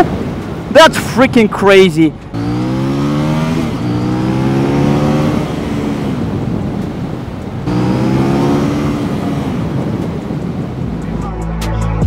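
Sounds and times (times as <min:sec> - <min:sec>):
wind rushing: 0:00.0 - 0:11.4
motorcycle engine accelerating: 0:02.1 - 0:10.9.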